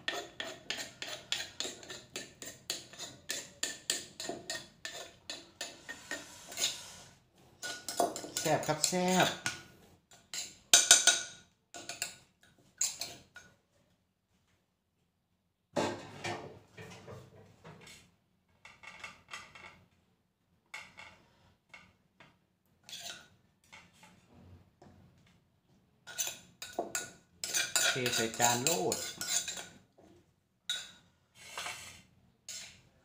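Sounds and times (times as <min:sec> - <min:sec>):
metal spoon scraping clay mortar: 0:00.0 - 0:11.2, 0:12.8 - 0:13.3, 0:22.8 - 0:23.3, 0:26.0 - 0:29.8, 0:30.7 - 0:32.8.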